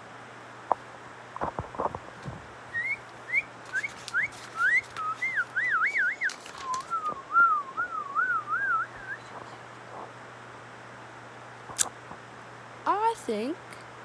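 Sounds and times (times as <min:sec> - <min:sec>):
person whistling: 0:02.8 - 0:09.4.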